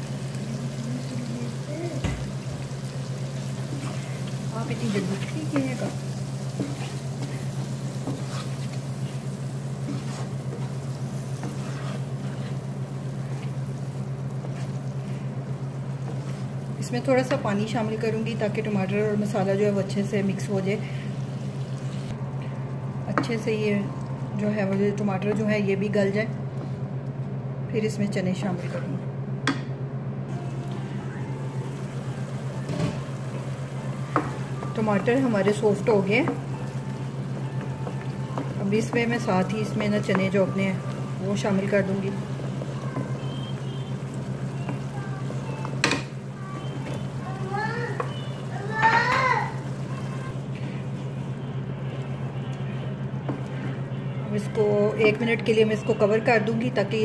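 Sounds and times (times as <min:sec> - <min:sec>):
faint sizzle: 0:00.0 - 0:27.2, 0:30.3 - 0:57.0
steady low hum: 0:00.0 - 0:57.0
wooden spatula scraping a pan: 0:03.6 - 0:13.6, 0:16.0 - 0:16.6
sauce simmering and bubbling: 0:36.3 - 0:52.5.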